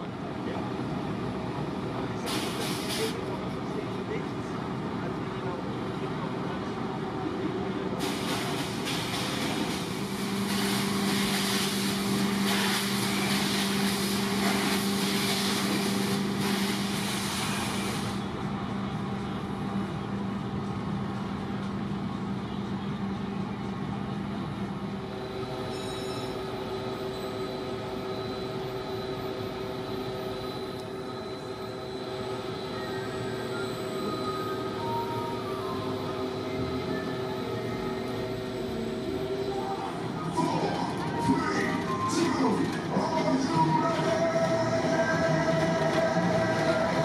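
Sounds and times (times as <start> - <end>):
loud hiss: 2.3 - 3.2, 8.0 - 18.2.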